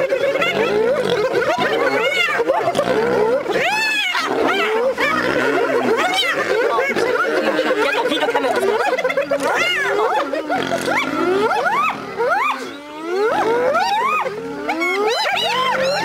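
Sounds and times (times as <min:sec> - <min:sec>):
hyenas calling: 0:00.0 - 0:16.0
lioness growling and snarling: 0:00.2 - 0:12.3.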